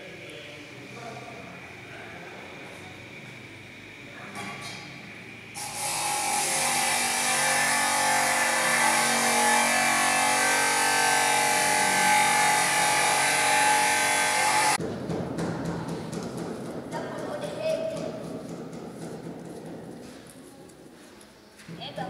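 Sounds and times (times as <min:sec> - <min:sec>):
mechanical drone: 0:05.0 - 0:14.9.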